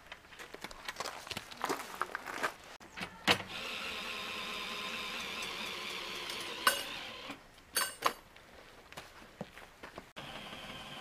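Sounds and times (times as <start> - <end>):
metal hardware clanking: 7.7 - 8.2.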